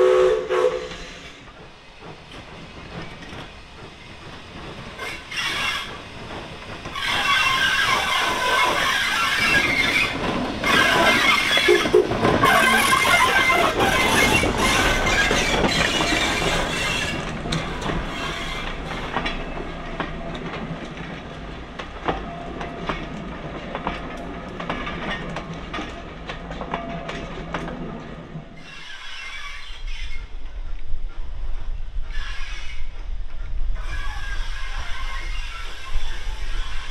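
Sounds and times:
steam train passing: 0:00.0 - 0:36.9
wheels clicking over rail joints: 0:01.3 - 0:29.6.

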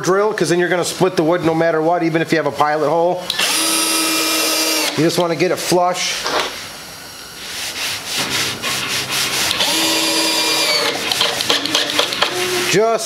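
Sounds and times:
cordless drill motor whirring: 0:03.3 - 0:05.0, 0:09.5 - 0:12.8
screw grinding into wood: 0:03.3 - 0:05.0, 0:08.2 - 0:12.6.

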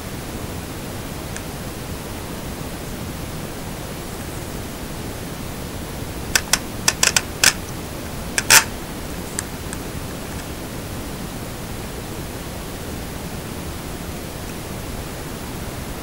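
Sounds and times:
steady hiss: 0:00.0 - 0:16.0
headphone sliders clicking: 0:06.4 - 0:07.6, 0:08.4 - 0:08.8.

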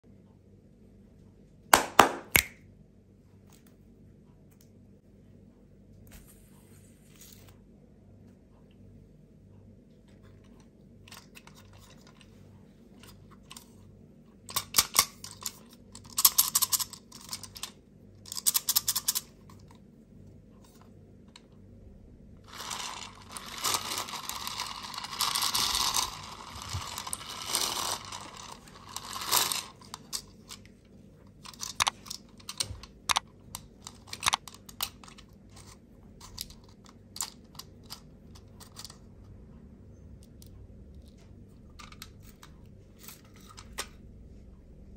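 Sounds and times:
small fan whirring: 0:03.8 - 0:44.9
plastic toy rattling and clicking: 0:10.6 - 0:12.3, 0:14.5 - 0:19.7, 0:22.5 - 0:30.8, 0:31.4 - 0:39.0, 0:41.8 - 0:44.0.

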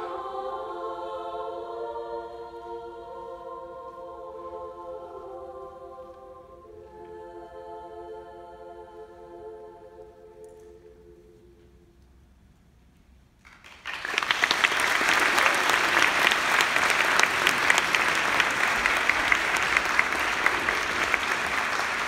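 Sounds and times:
choir holding chord: 0:00.0 - 0:11.8, 0:15.0 - 0:22.0
audience applause: 0:13.5 - 0:22.0.

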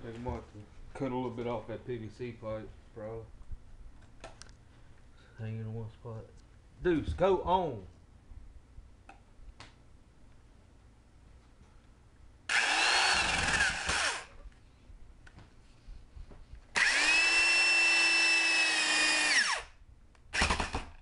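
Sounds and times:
electric drill drilling into wood: 0:12.5 - 0:14.3, 0:16.8 - 0:21.0.

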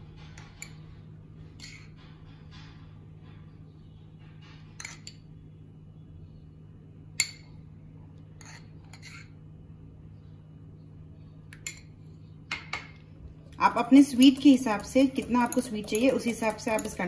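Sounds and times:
spoon clinking against glass bowl: 0:14.2 - 0:17.0.

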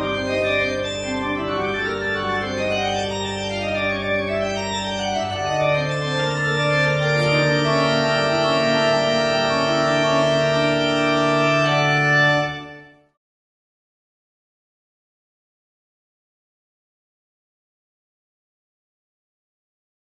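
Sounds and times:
organ playing sustained chords: 0:00.0 - 0:13.0.

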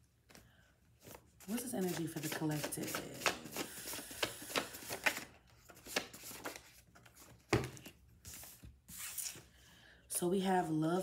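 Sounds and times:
cards being shuffled: 0:01.0 - 0:09.5.

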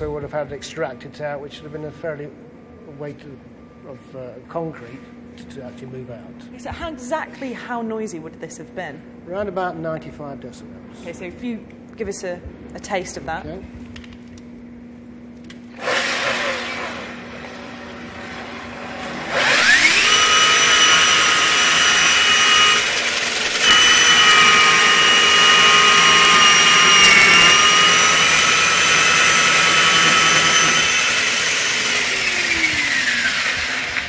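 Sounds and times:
core drill motor whining: 0:15.7 - 0:34.0.

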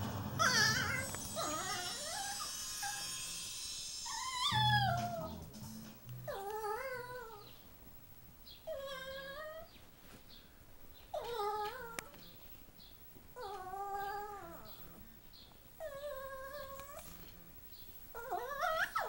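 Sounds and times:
dog yowling whines: 0:00.4 - 0:05.5, 0:06.3 - 0:07.5, 0:08.6 - 0:09.7, 0:13.4 - 0:15.0, 0:15.8 - 0:17.3, 0:18.1 - 0:19.0.

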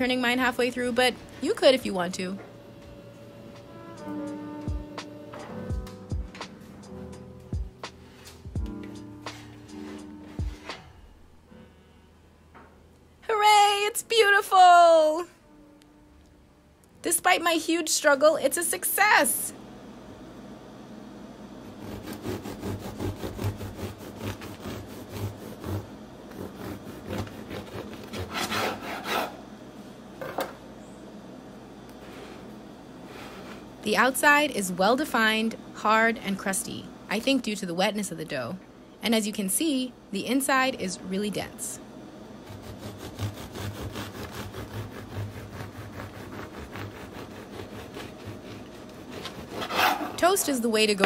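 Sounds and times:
bread knife sawing crusty loaf: 0:21.6 - 0:29.4, 0:42.4 - 0:50.5.

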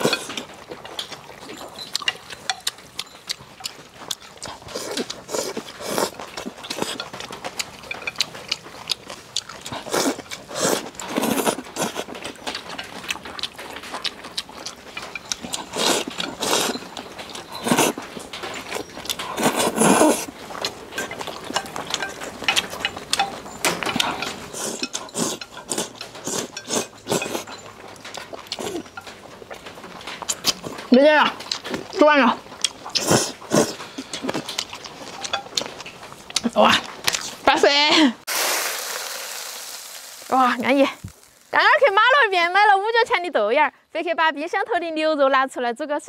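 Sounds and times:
chewing: 0:00.0 - 0:37.9
noodle slurping: 0:04.4 - 0:07.0, 0:08.2 - 0:12.5, 0:13.4 - 0:16.8, 0:17.5 - 0:18.0, 0:18.6 - 0:22.1, 0:24.0 - 0:27.5, 0:32.7 - 0:35.0.

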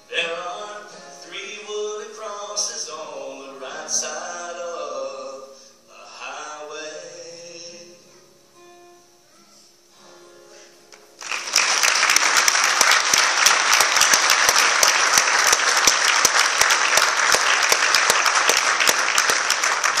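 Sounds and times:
audience applauding: 0:11.2 - 0:20.0.

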